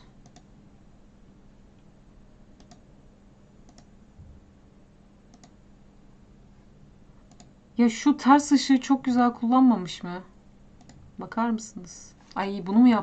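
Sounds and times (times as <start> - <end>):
low steady hum: 0.0 - 13.0
computer mouse clicks: 0.2 - 0.5, 2.6 - 2.8, 3.6 - 3.9, 5.3 - 5.6, 7.2 - 7.6, 10.8 - 11.0.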